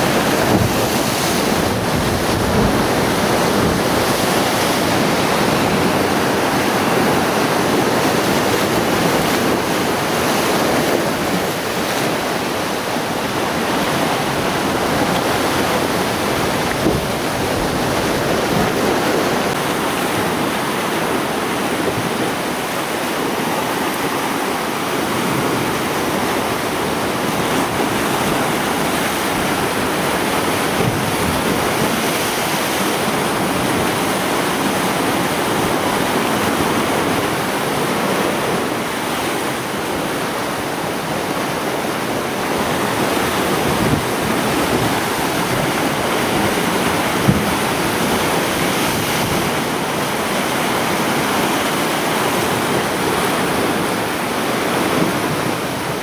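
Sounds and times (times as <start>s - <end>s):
surf breaking against rock: 0.0s - 22.7s.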